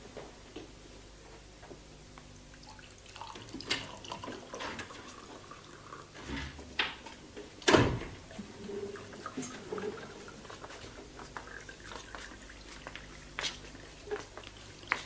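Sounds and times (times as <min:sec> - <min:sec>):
liquid pouring into a glass: 0:02.5 - 0:06.2, 0:08.2 - 0:15.0.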